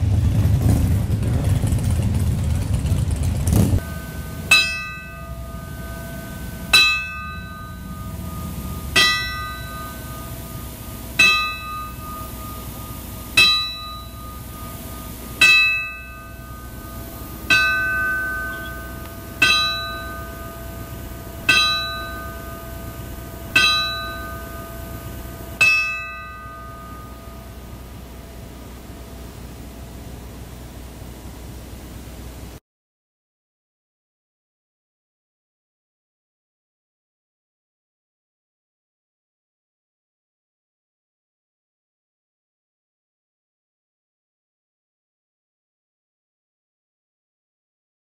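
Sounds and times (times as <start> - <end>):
bell tolling: 3.8 - 29.9.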